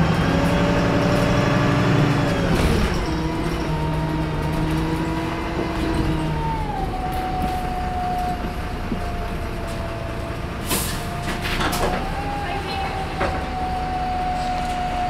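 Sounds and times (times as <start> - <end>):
bus turbo whine: 0.0 - 15.0
engine and road rumble: 0.0 - 15.0.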